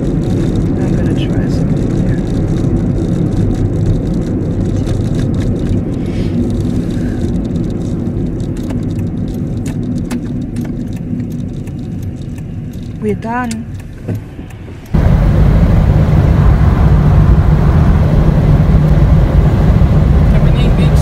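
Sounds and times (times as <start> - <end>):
light clicks and rattles: 0.0 - 15.0
car interior rumble: 0.0 - 21.0.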